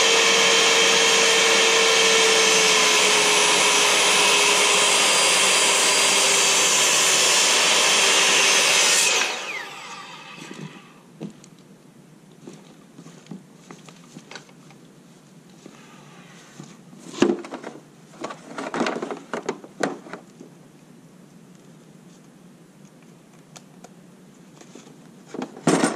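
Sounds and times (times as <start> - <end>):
circular saw cutting wood: 0.0 - 11.0.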